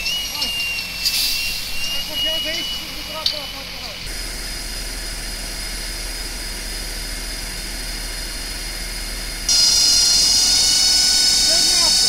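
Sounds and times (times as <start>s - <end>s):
fire engine pump engine drone: 0.0s - 12.0s.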